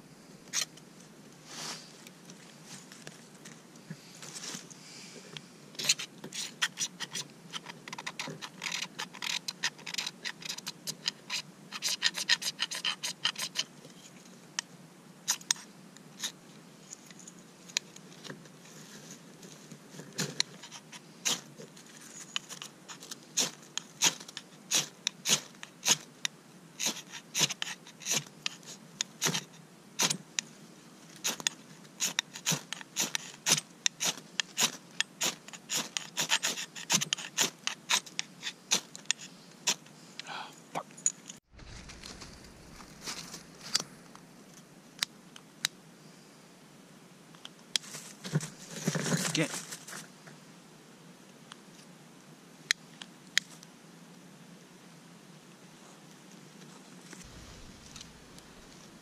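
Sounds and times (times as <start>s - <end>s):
knife scraping ferro rod: 5.8s - 13.7s, 26.8s - 30.2s, 31.2s - 39.8s.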